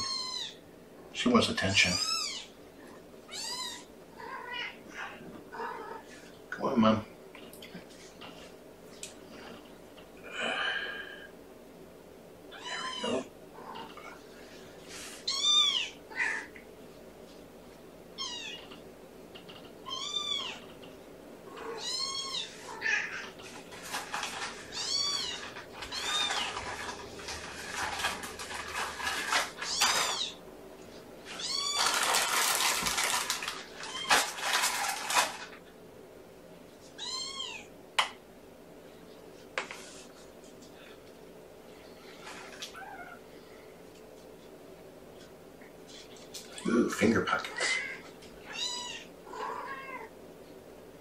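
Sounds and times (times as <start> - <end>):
cat mewing: 21.5 - 23.3, 47.6 - 50.1
rustling: 21.6 - 35.6.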